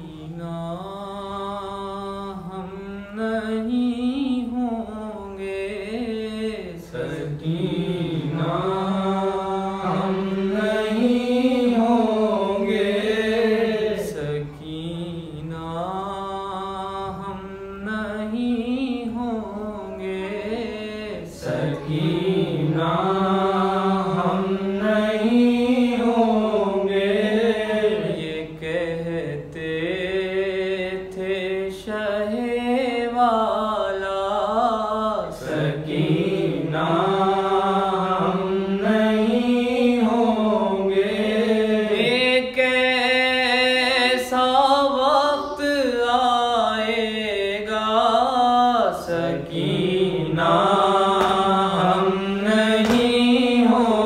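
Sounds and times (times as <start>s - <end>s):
man chanting a lament: 0.0s - 54.0s.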